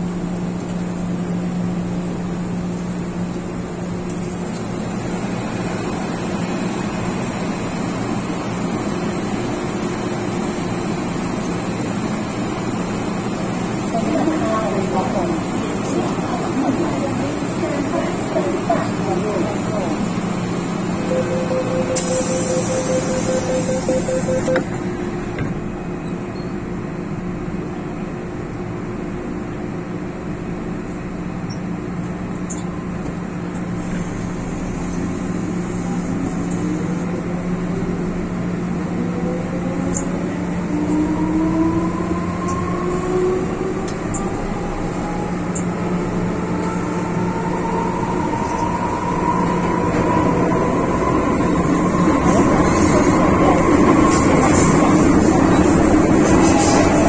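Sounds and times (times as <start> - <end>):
train interior hum: 0.0 - 57.0
traction motors whining: 21.0 - 24.8.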